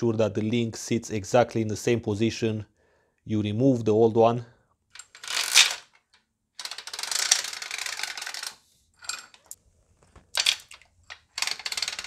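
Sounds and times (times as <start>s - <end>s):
metal chain clinking and rattling: 5.0s - 5.9s, 6.6s - 9.6s, 10.4s - 12.0s.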